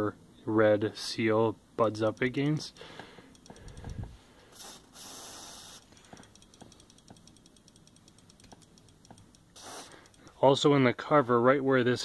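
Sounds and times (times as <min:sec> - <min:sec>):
aerosol spray bursts: 0:04.6 - 0:05.9, 0:09.5 - 0:10.1.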